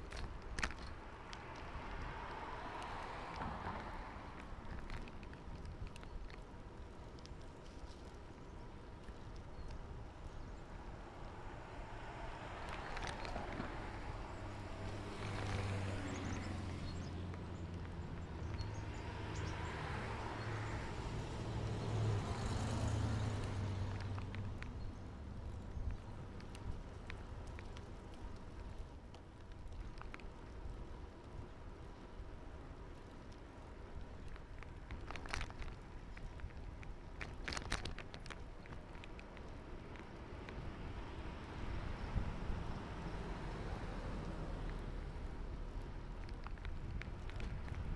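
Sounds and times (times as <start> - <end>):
bicycle clicks and rattles: 0.0 - 20.8, 21.8 - 43.2, 44.2 - 47.9
wind and road noise rumble: 0.0 - 47.9
car passing: 0.6 - 5.0, 10.8 - 28.8, 39.6 - 46.4.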